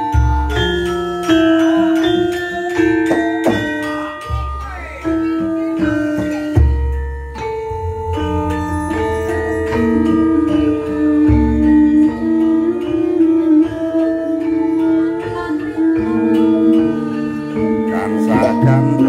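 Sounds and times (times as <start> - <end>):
metallophones ringing: 0.0 - 19.0.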